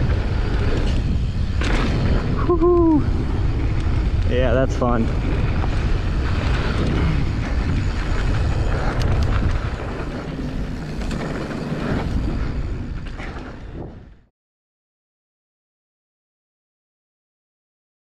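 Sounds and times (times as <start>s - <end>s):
bike clicks and rattles: 0.0s - 14.1s
wind buffeting microphone: 0.0s - 14.3s
tyres rolling on dirt: 3.3s - 14.1s.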